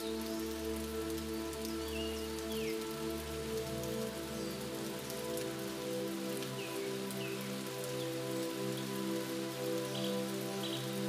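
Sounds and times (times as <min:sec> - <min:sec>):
rain on foliage: 0:00.0 - 0:11.0.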